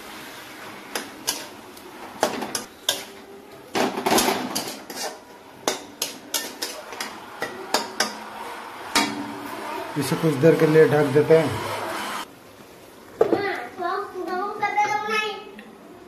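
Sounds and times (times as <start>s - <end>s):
metal spatula scraping metal pan: 2.2s - 3.3s, 4.0s - 12.2s.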